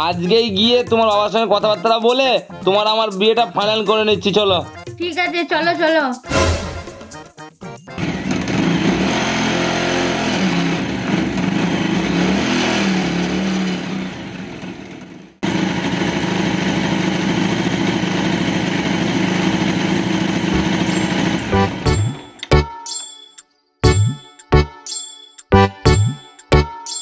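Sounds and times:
motorcycle engine running: 8.0s - 22.3s.

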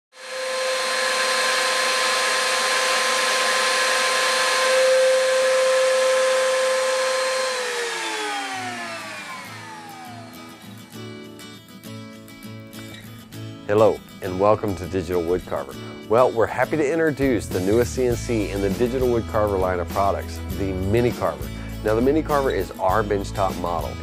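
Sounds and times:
woodworking router motor whining: 0.1s - 11.1s.

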